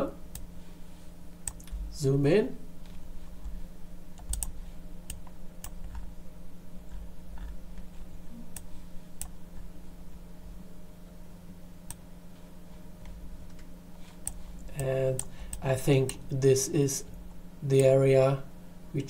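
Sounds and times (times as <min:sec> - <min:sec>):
low electrical hum: 0:00.0 - 0:19.0
computer mouse clicks: 0:04.2 - 0:06.1, 0:13.4 - 0:16.2.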